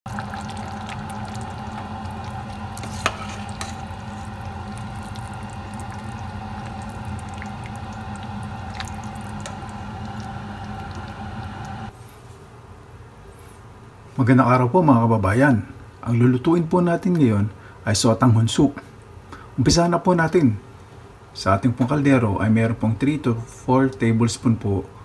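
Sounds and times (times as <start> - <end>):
soup bubbling in a pot: 0.0 - 11.9
low steady hum: 0.0 - 12.2.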